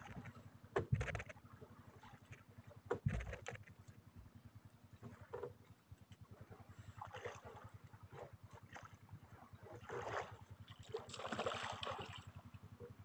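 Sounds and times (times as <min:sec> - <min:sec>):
boat engine puttering: 0:00.0 - 0:04.2, 0:12.1 - 0:13.0.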